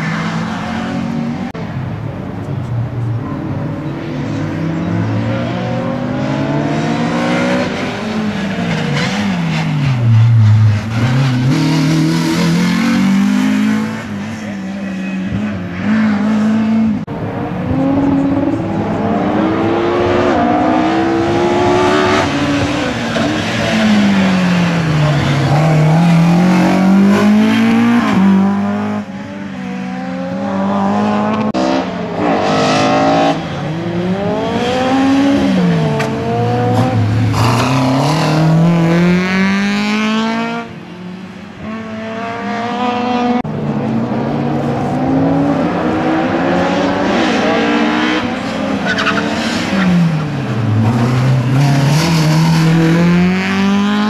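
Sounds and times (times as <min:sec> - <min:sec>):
racing car engine revving: 0:41.6 - 0:54.0.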